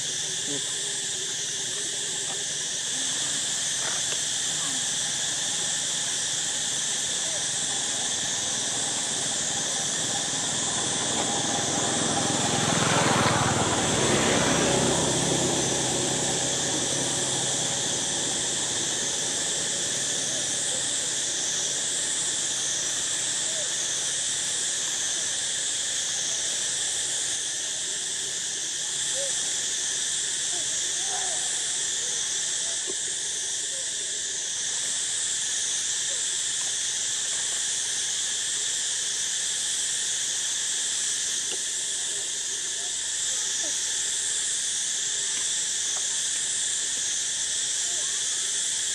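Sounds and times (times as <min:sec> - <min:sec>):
high-pitched insect chorus: 0:00.0 - 0:48.9
passing engine: 0:07.8 - 0:22.4.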